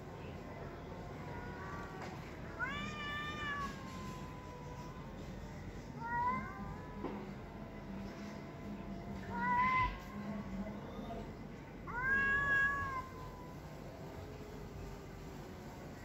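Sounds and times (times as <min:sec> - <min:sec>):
cats yowling: 0:02.5 - 0:05.2, 0:05.9 - 0:07.3, 0:11.9 - 0:13.9.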